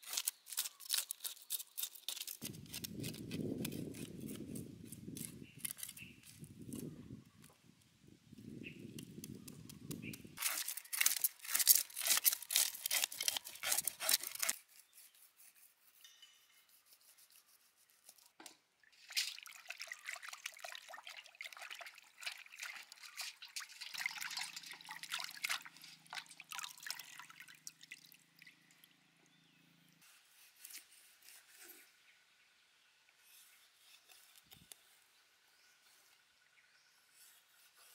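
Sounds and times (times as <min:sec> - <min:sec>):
knife scraping fish scales: 0:00.0 - 0:06.8, 0:10.4 - 0:18.4, 0:30.0 - 0:31.8
water splashing in metal bowl: 0:19.0 - 0:28.9.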